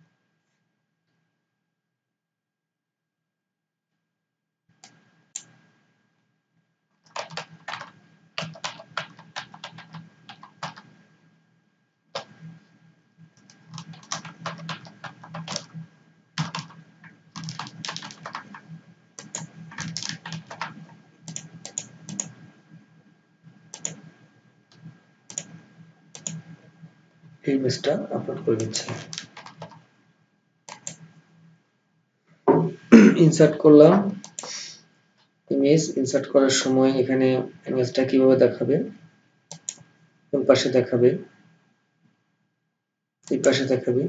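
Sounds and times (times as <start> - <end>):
keyboard typing: 7.0 - 11.0, 12.2 - 12.5, 13.4 - 15.8, 16.4 - 22.5, 23.7 - 24.1, 24.7 - 26.5, 28.5 - 29.8, 30.7 - 31.1, 34.2 - 34.6, 39.5 - 39.9.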